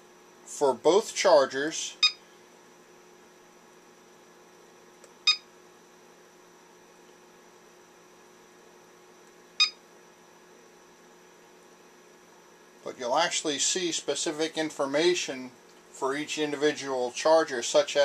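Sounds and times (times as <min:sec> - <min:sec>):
faint steady hum: 0:00.0 - 0:18.0
battery charger beeping: 0:05.2 - 0:05.5, 0:09.6 - 0:09.8.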